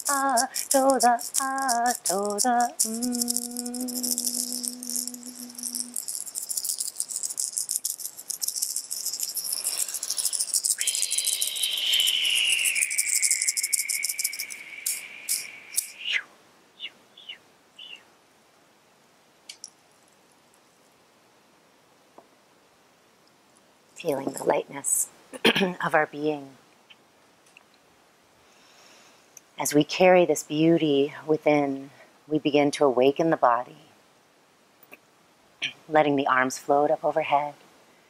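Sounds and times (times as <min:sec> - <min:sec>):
woman chanting: 0:00.0 - 0:06.0, 0:10.8 - 0:13.4, 0:24.0 - 0:25.1, 0:35.9 - 0:37.6
hand rattle shaken: 0:00.0 - 0:16.1
high whistled tone sliding: 0:00.0 - 0:17.4.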